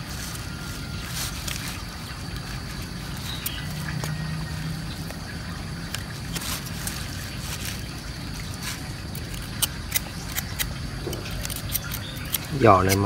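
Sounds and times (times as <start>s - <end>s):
knife scraping skin: 8.5s - 13.0s.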